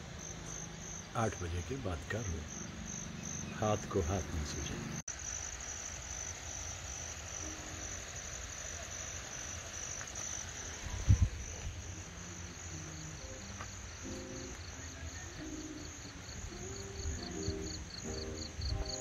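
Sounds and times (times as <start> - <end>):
crickets chirping: 0.0 - 19.0
faint background music: 10.4 - 19.0.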